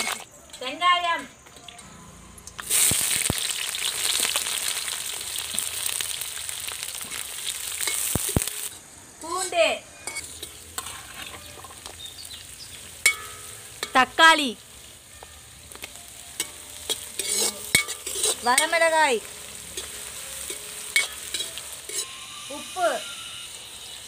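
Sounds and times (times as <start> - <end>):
onions sizzling in hot oil: 0.0 - 24.0
steel ladle stirring: 7.0 - 14.2, 15.1 - 22.5.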